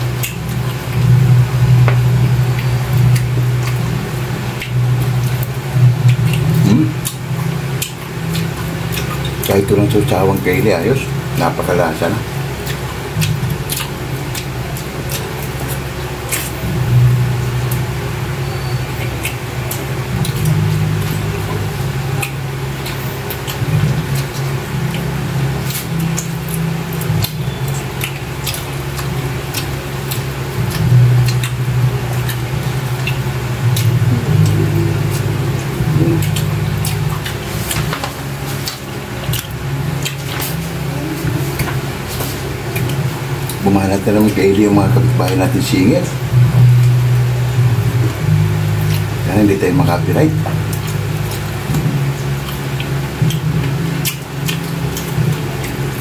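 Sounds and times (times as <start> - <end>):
chewing and lip smacking: 0.0 - 56.0
low hum: 0.0 - 56.0
meat being torn: 12.6 - 17.0, 19.1 - 44.3, 50.5 - 56.0.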